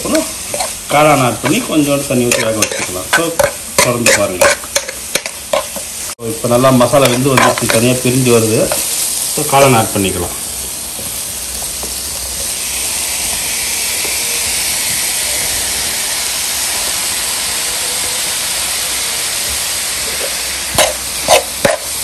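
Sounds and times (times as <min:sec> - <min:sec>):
food sizzling in oil: 0:00.0 - 0:22.0
metal spoon clacking on pan: 0:02.2 - 0:05.9, 0:20.8 - 0:21.9.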